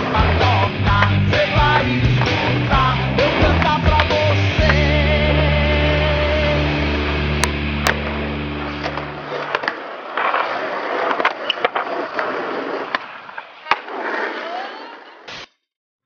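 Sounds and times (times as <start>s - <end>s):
skateboard popping and landing: 0.0s - 4.9s, 8.7s - 15.4s
music track: 0.0s - 9.4s
skateboard wheels rolling on pavement: 0.0s - 15.4s.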